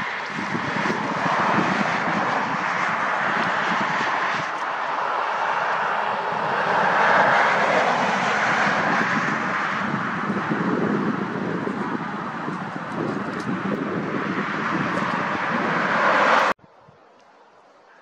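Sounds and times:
highway traffic rushing: 0.0 - 16.7.

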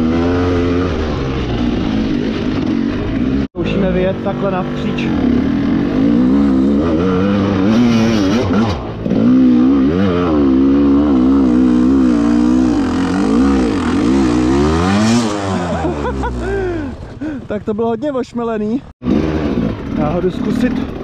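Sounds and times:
motorcycle engine revving: 0.0 - 17.7, 19.0 - 21.0.

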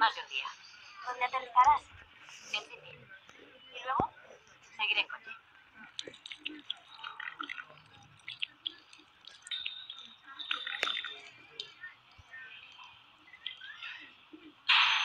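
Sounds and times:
wet squelches and drips: 5.7 - 14.6.

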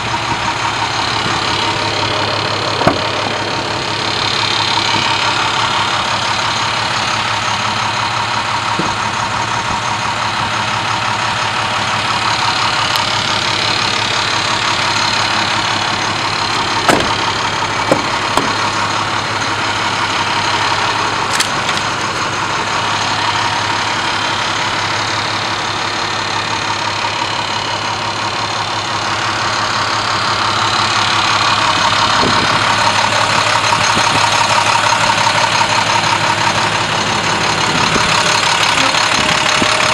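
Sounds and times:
diesel engine idling: 0.0 - 39.9
vehicle door clicks: 16.8 - 17.3, 17.9 - 18.6.

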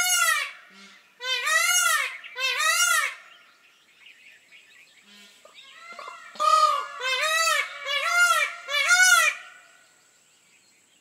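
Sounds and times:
peacock honking call: 0.0 - 3.3, 5.0 - 9.8.

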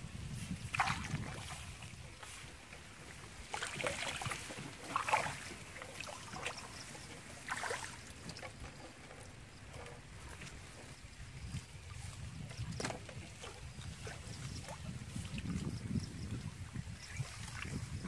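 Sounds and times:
wind rumble on microphone: 0.0 - 18.0
hands splashing in shallow water: 0.6 - 1.8, 3.5 - 6.2.

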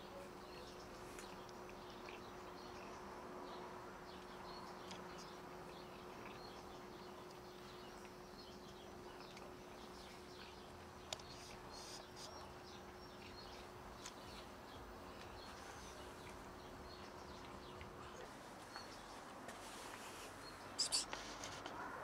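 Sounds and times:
short high chirps: 20.8 - 21.1.

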